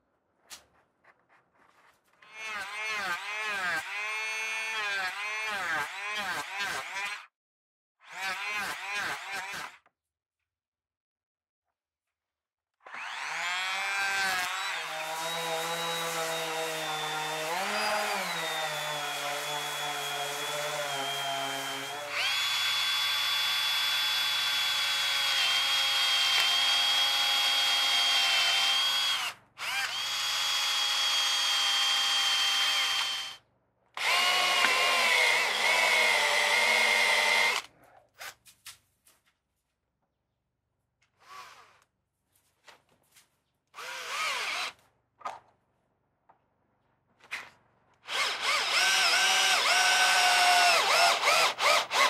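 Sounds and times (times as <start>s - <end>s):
power drill boring into wood: 12.9s - 33.4s, 34.0s - 37.7s, 43.8s - 44.8s, 48.0s - 52.0s.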